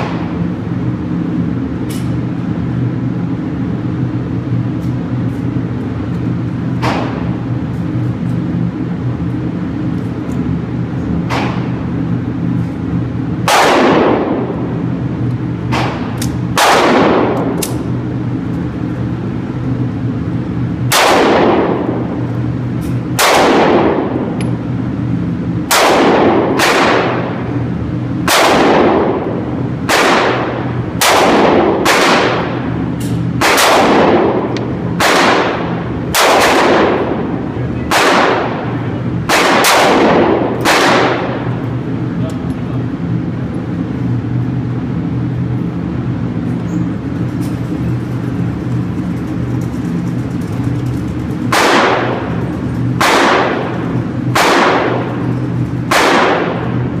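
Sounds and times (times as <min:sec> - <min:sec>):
echoing gunshots: 0:00.0 - 0:00.4, 0:13.4 - 0:14.8, 0:15.6 - 0:17.9, 0:20.9 - 0:22.2, 0:23.1 - 0:24.4, 0:25.6 - 0:27.6, 0:28.2 - 0:41.9, 0:51.4 - 0:57.0
low hum: 0:00.0 - 0:57.0.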